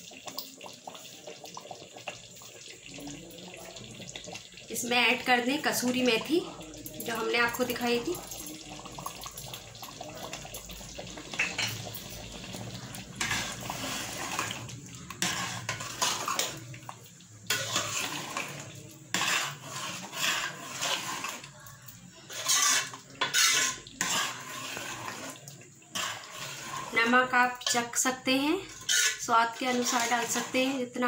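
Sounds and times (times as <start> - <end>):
liquid sloshing: 2.1 - 27.8, 28.6 - 30.7
spatula scraping metal pot: 11.1 - 16.7, 17.4 - 21.5, 22.2 - 31.0.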